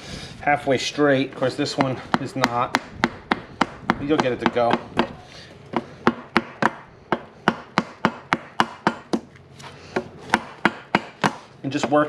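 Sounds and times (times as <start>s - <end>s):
hammer tapping: 1.8s - 9.3s, 10.0s - 12.0s.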